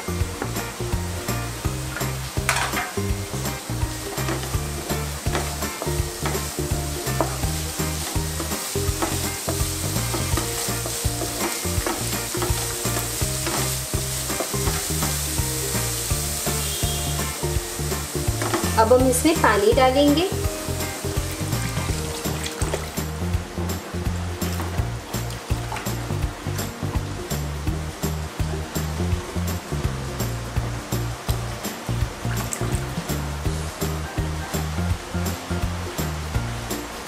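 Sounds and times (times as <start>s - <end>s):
vegetables sizzling in oil: 0.0s - 37.0s
spatula scraping pan: 4.1s - 19.0s.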